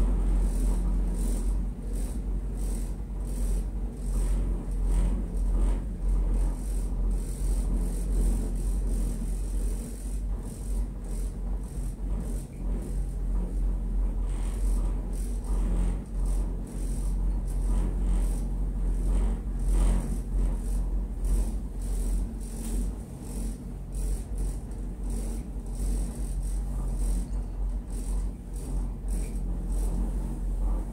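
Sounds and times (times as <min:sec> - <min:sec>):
gondola cabin rumble: 0:00.0 - 0:30.9.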